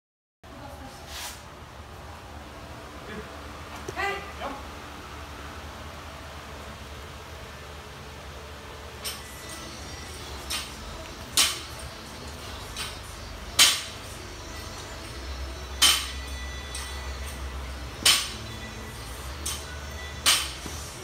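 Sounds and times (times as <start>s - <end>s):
weight plates clinking: 9.0s - 14.0s, 14.9s - 18.5s, 19.3s - 20.7s
barbell dropping on rubber floor: 18.0s - 18.4s, 20.2s - 20.6s.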